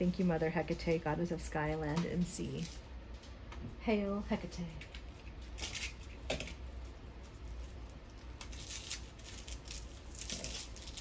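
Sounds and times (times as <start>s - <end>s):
wrapping material crinkling: 5.0s - 11.0s.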